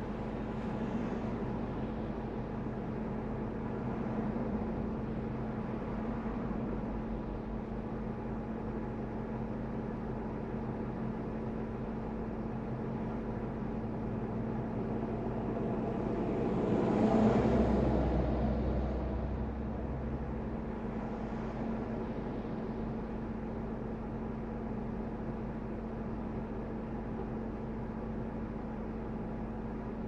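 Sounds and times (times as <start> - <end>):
car engine hum: 11.6 - 27.0.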